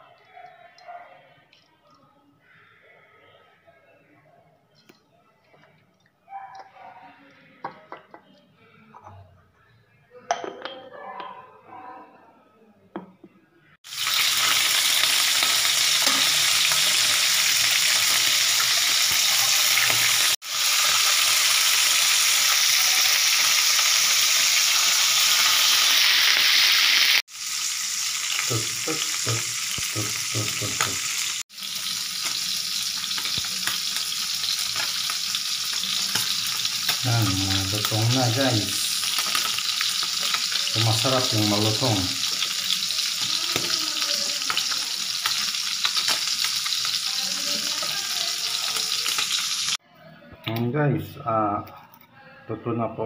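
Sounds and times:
fish frying in hot oil: 0:13.8 - 0:49.8.

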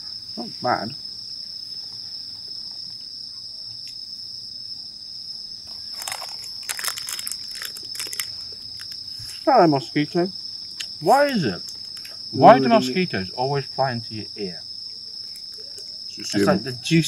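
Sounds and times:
insects chirring: 0:00.0 - 0:17.0
close crackling and rustling: 0:05.7 - 0:09.5, 0:10.7 - 0:12.3.

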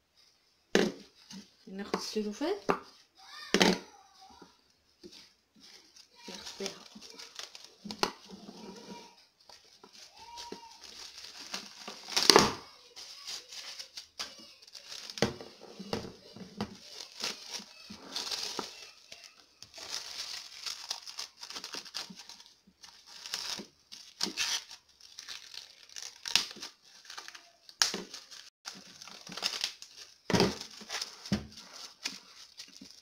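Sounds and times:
cling film crinkling: 0:05.2 - 0:15.2, 0:15.8 - 0:33.0.

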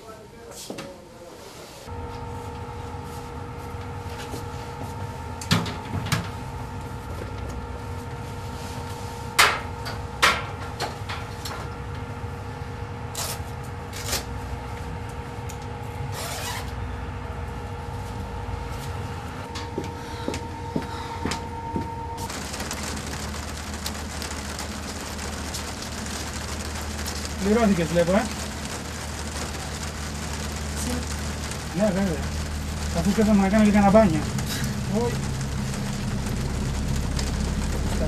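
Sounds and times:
steady hum: 0:01.9 - 0:38.0
low rumble: 0:16.8 - 0:38.0.

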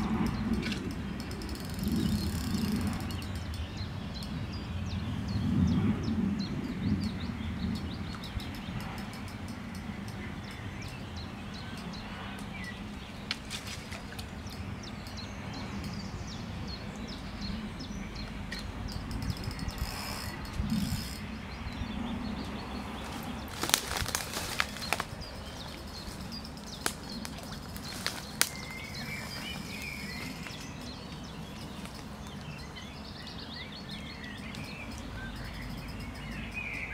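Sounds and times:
rapid clicking: 0:00.0 - 0:03.6
small birds chirping: 0:00.0 - 0:36.9.

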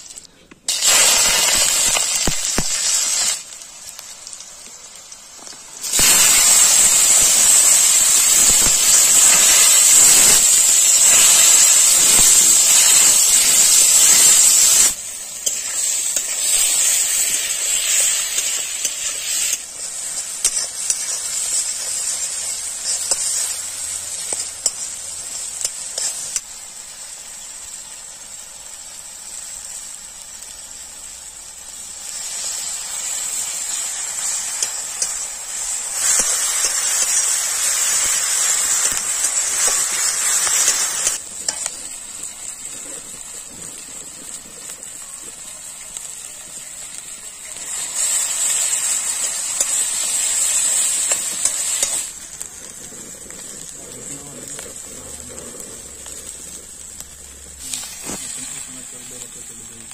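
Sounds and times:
food sizzling in a pan: 0:00.0 - 0:59.9
metal spatula scraping a pan: 0:05.8 - 0:26.4.

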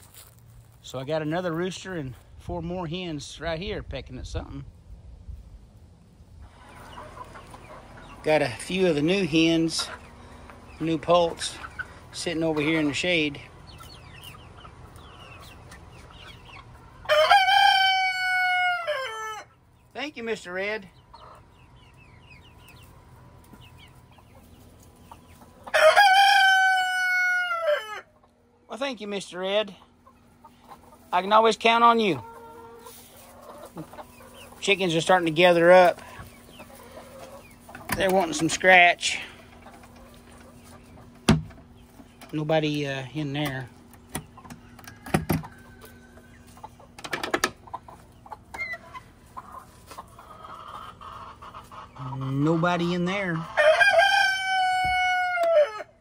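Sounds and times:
chickens clucking softly: 0:06.4 - 0:55.8
rooster crowing: 0:17.0 - 0:19.5, 0:25.7 - 0:28.1, 0:53.6 - 0:56.0.

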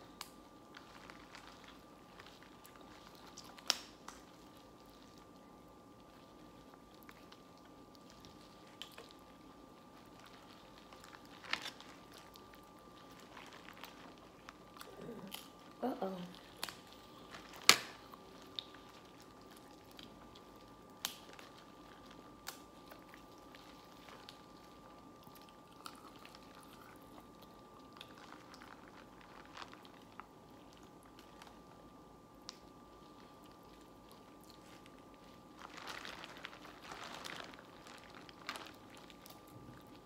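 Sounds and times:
faint steady hum: 0:00.0 - 0:40.0
people chewing: 0:06.0 - 0:31.5.

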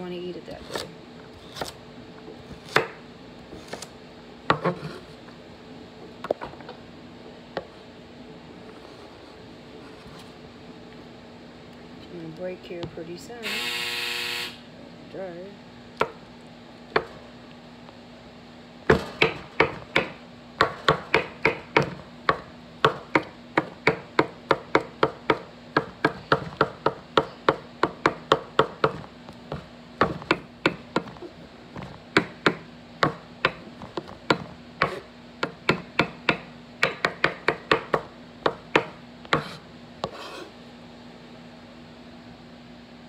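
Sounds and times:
knife chopping on wooden board: 0:02.5 - 0:03.0, 0:04.5 - 0:05.0, 0:18.9 - 0:40.5.

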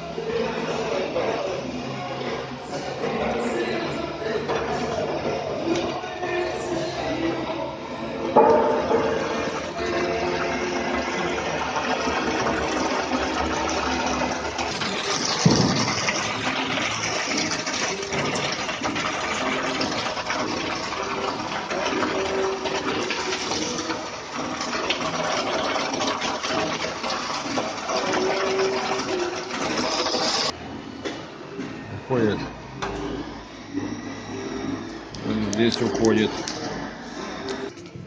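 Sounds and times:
liquid churning and pouring: 0:02.8 - 0:30.6.

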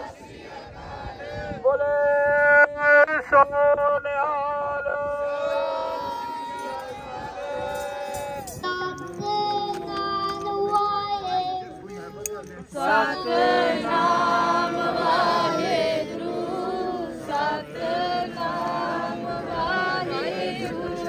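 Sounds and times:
group of voices chanting: 0:12.8 - 0:21.0.

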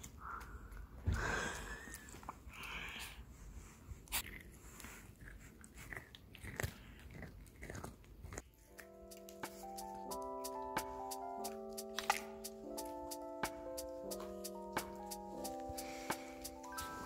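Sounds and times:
dog chewing carrot: 0:04.1 - 0:09.6
music: 0:08.6 - 0:17.0.

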